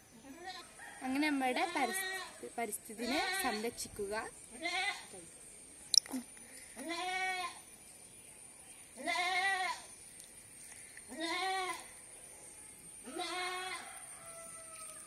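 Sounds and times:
goat bleating: 6.8s - 7.6s, 11.1s - 11.8s, 13.1s - 13.8s.

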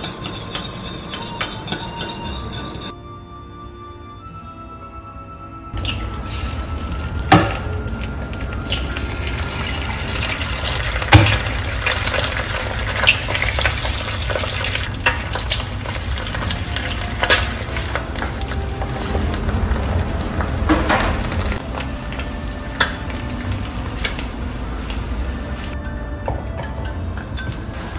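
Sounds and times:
eggs sizzling in oil: 5.8s - 27.9s.

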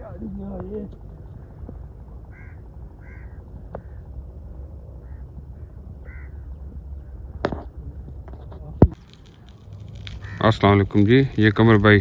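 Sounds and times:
bird calls: 0.1s - 8.0s.

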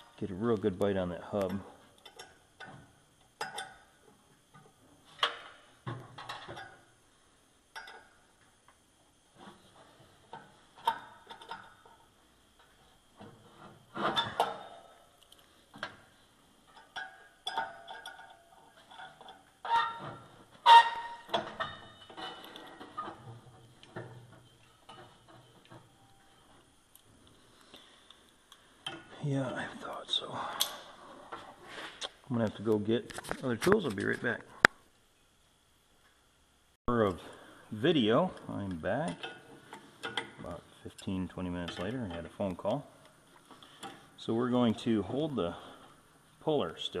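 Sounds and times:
short squeaks: 19.6s - 21.3s.

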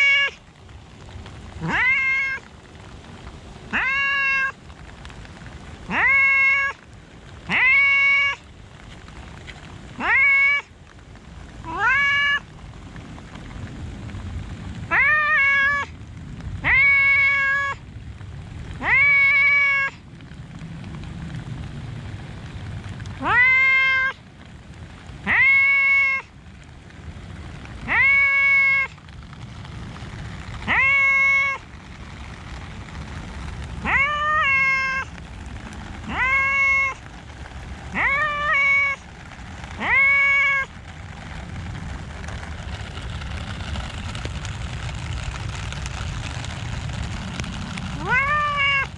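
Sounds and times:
cat meowing: 0.0s - 0.4s, 1.6s - 2.4s, 3.7s - 4.6s, 5.9s - 6.8s, 7.5s - 8.4s, 10.0s - 10.7s, 11.6s - 12.5s, 14.9s - 15.9s, 16.6s - 17.8s, 18.8s - 20.0s, 23.2s - 24.2s, 25.2s - 26.3s, 27.8s - 28.9s, 30.6s - 31.6s, 33.8s - 35.1s, 36.1s - 37.0s, 37.9s - 39.0s, 39.8s - 40.8s, 48.0s - 48.9s.

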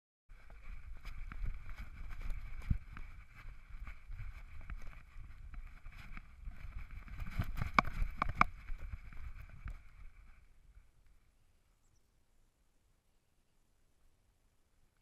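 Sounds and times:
camera harness thumps and rubbing: 7.3s - 9.0s.

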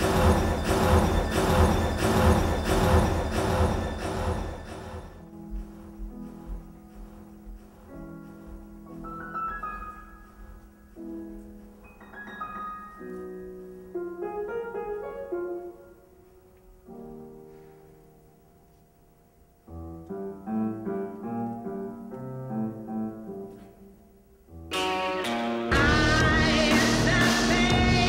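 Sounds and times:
solo piano music: 5.2s - 24.7s.

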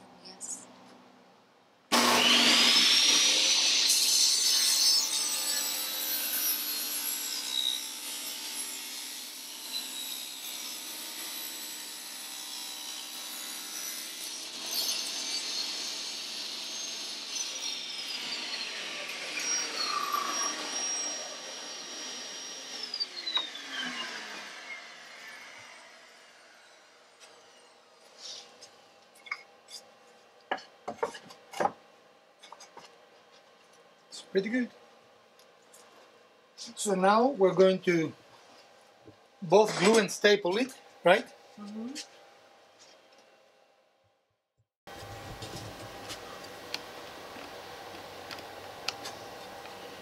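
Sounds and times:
saw ripping wooden board: 1.9s - 8.7s
table saw whine: 1.9s - 28.6s, 44.9s - 50.0s.

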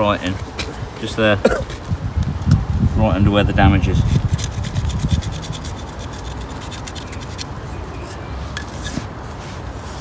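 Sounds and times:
knife scraping metal: 4.0s - 9.1s.

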